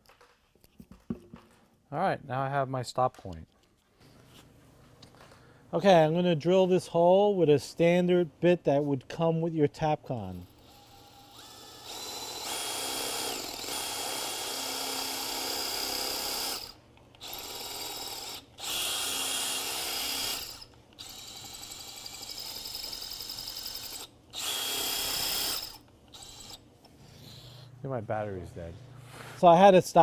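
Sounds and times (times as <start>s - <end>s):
drill motor whining into concrete: 10.6s - 26.6s.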